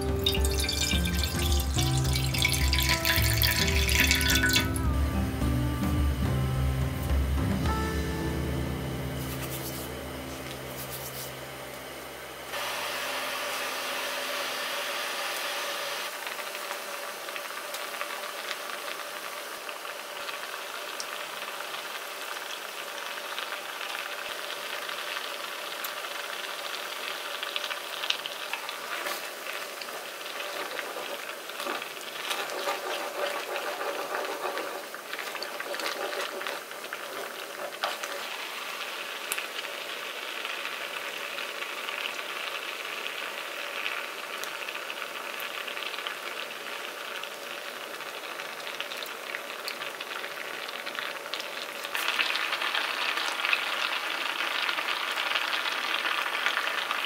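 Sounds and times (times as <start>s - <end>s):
sauce bubbling and simmering: 0.0s - 4.8s, 16.1s - 57.0s
background music: 0.0s - 12.5s.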